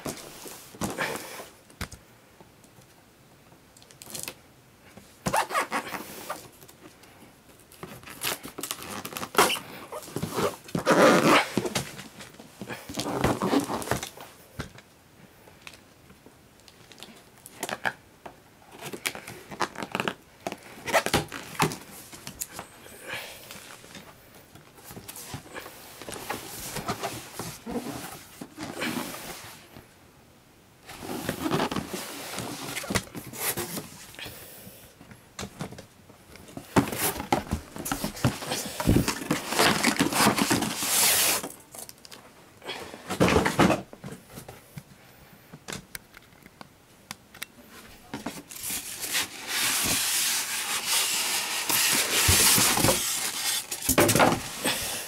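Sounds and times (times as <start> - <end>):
cardboard flaps scraping and knocking: 36.5 - 41.5, 48.2 - 54.6
plastic wrap crinkling: 48.3 - 54.7.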